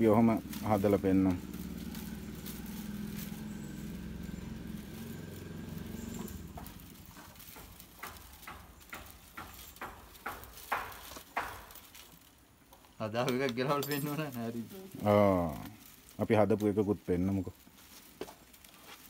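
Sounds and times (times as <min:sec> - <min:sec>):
engine humming: 0:00.0 - 0:10.4
dry leaf ribs clicking together: 0:00.0 - 0:13.6.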